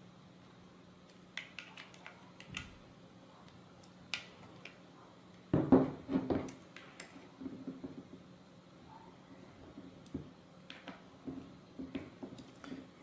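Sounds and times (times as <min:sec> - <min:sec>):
chassis knocking and scraping on table: 0:05.6 - 0:06.6.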